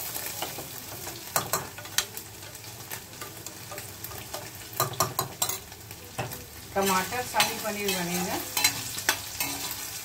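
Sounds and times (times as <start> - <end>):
rice sizzling in oil: 0.0 - 10.0
metal spoon scraping and clinking pot: 6.8 - 9.9.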